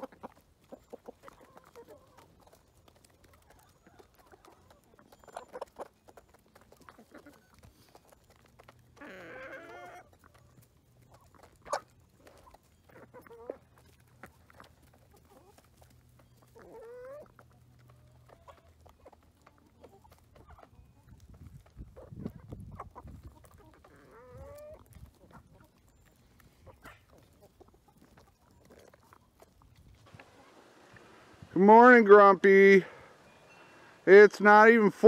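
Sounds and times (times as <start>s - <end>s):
chickens clucking: 0.0s - 35.0s
rising chicken calls: 9.0s - 10.1s, 30.0s - 34.2s.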